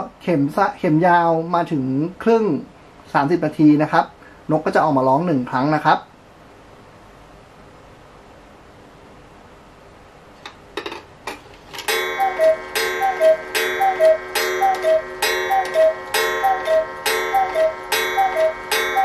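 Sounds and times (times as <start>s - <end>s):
clock mechanism clicks: 11.9s - 19.0s
clock strike ringing: 11.9s - 19.0s
two-note cuckoo calls: 11.9s - 19.0s.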